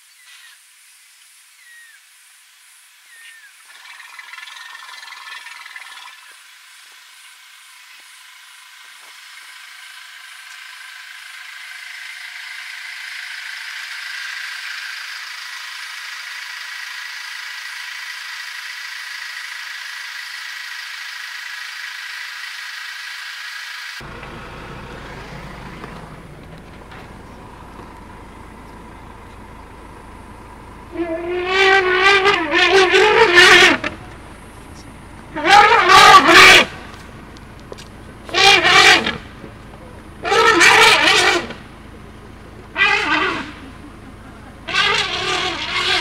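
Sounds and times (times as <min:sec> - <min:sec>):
steady high hiss: 0:00.0 - 0:25.3
low rumble: 0:24.0 - 0:35.8
elephant trumpeting: 0:30.8 - 0:37.1, 0:38.2 - 0:39.4, 0:40.1 - 0:42.1, 0:42.7 - 0:46.0.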